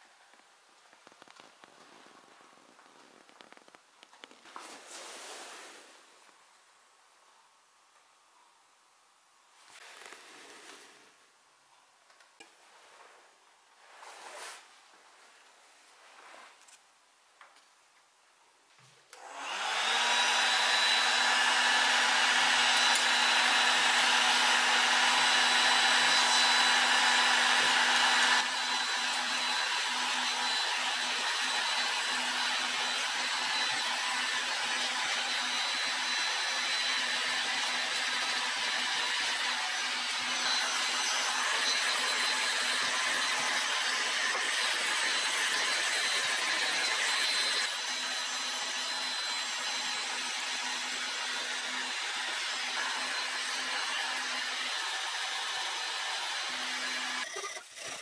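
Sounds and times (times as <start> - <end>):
heat gun running: 19.2 - 58.0.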